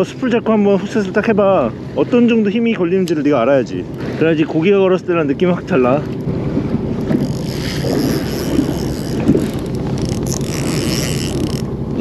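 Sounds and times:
boat engine humming: 0.0 - 12.0
wind buffeting microphone: 3.8 - 12.0.

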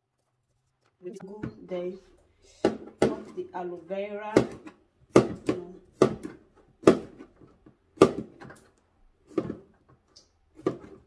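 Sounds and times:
knife chopping on counter: 4.3 - 7.3, 8.0 - 8.4.

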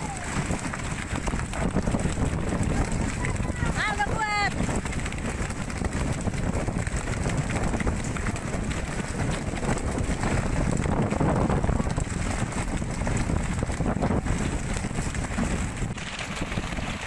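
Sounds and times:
boat and sea rushing: 0.0 - 17.0
wind buffeting microphone: 0.0 - 17.0.

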